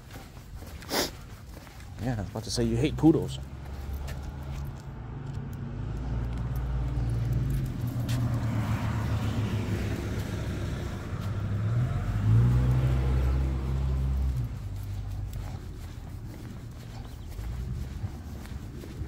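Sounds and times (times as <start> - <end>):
car engine running: 10.4 - 18.8.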